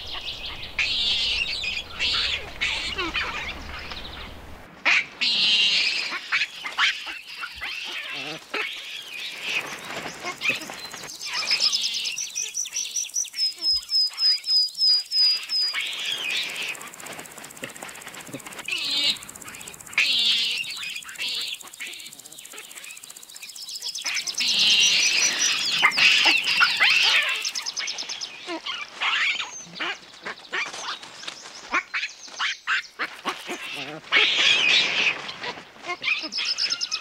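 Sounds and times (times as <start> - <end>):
dense chattering: 0.0 - 4.7, 15.6 - 27.7
high-pitched wildlife chirping: 0.0 - 4.7, 5.4 - 30.0.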